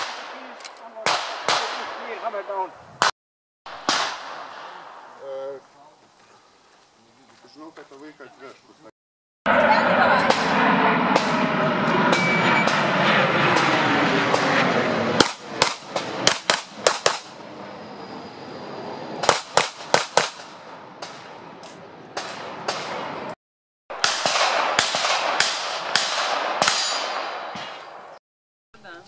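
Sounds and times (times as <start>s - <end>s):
handgun shots: 15.2s - 17.2s, 24.0s - 27.9s.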